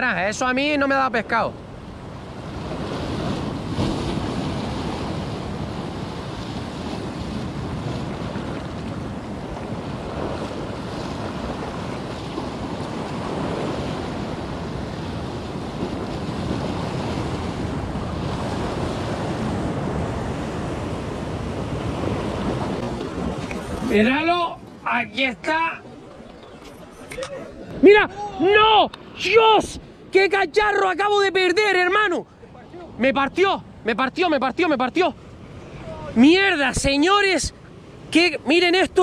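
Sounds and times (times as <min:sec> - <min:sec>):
surf breaking on shore: 0:00.0 - 0:39.0
wind buffeting microphone: 0:01.6 - 0:30.2.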